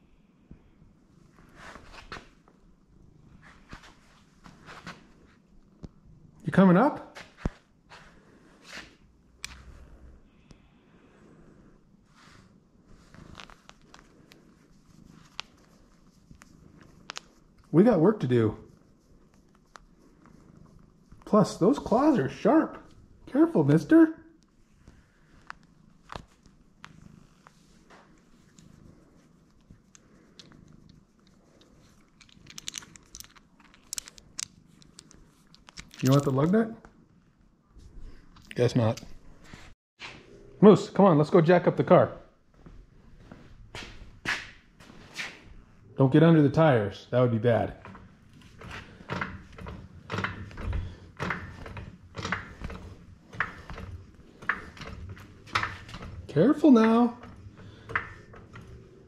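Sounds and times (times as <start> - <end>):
cat purring: 0.0 - 6.6, 7.6 - 35.5, 47.6 - 59.0.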